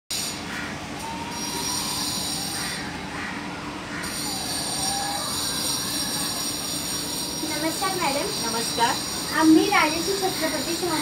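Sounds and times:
shrill high-pitched drone: 0.1 - 11.0
faint sliding whistle: 1.0 - 2.6.

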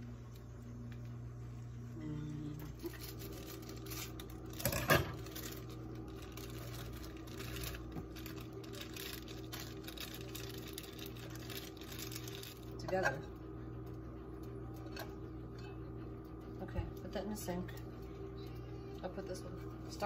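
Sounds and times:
low hum: 0.0 - 20.0
plastic bag rustling: 2.8 - 12.8.

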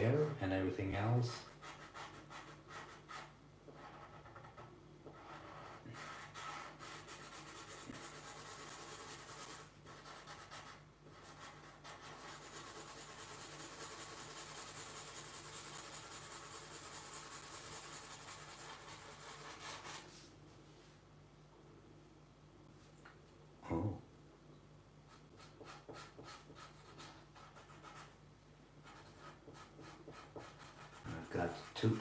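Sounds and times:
marker pen scratching on paper: 1.5 - 20.1, 25.1 - 28.2, 28.8 - 32.0.

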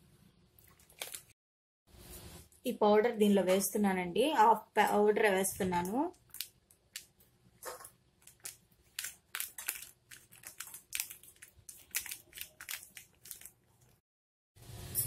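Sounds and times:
plastic packet crinkling: 0.6 - 1.3, 6.1 - 14.0.

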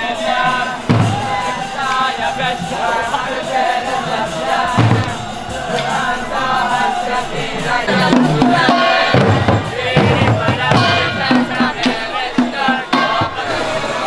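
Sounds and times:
drum beats: 0.0 - 14.0
group chanting: 0.0 - 14.0.

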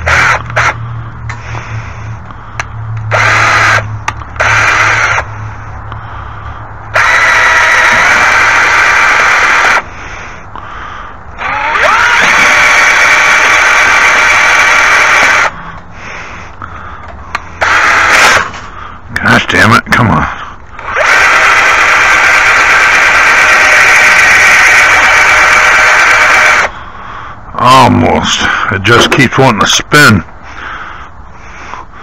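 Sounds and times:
electric drill drilling metal: 0.0 - 0.8, 3.1 - 5.3, 6.9 - 9.8, 11.4 - 15.6, 17.6 - 18.6, 20.8 - 26.7.

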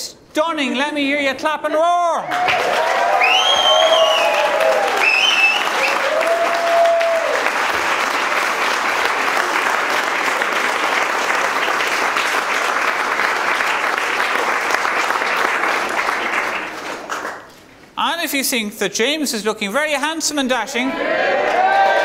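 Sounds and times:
long held shout: 2.2 - 7.5, 20.9 - 22.0
crowd clapping: 2.2 - 17.8, 21.4 - 22.0.

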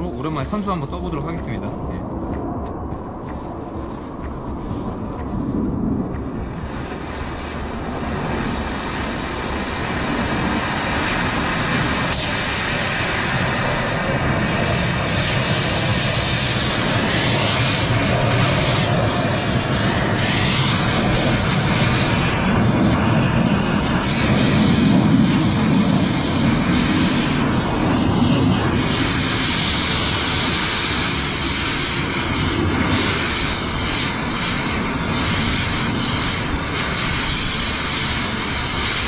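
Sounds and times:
cutting torch hissing: 5.6 - 39.0.

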